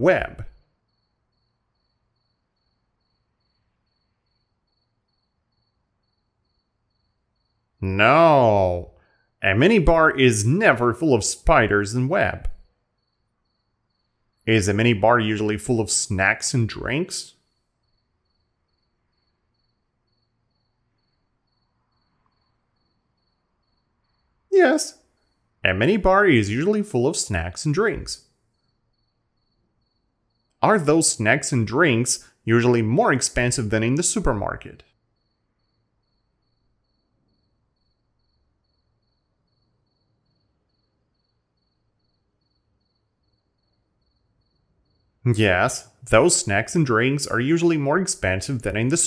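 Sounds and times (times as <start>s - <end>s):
low hiss: 6.7s - 17.5s, 23.8s - 25.0s, 25.6s - 28.2s, 30.5s - 34.8s, 45.2s - 49.0s.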